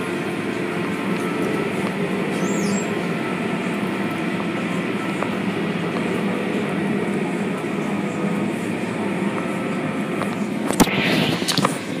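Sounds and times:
car wash rumble and swish: 0:07.0 - 0:12.0.

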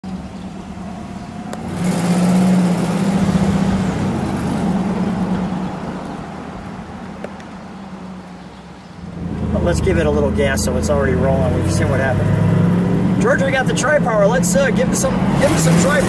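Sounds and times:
car engine driving by: 0:00.1 - 0:16.0.

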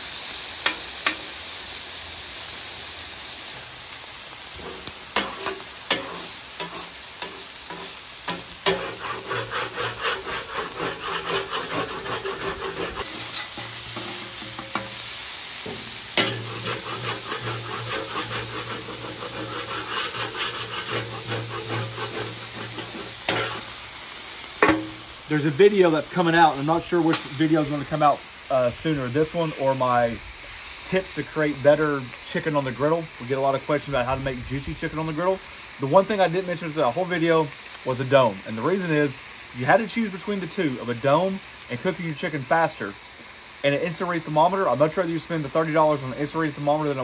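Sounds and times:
meat sizzling on a griddle: 0:00.0 - 0:47.0
spatula scraping a griddle: 0:04.5 - 0:23.9
metal spatula clacking on steel: 0:05.2 - 0:15.0, 0:15.6 - 0:23.5.

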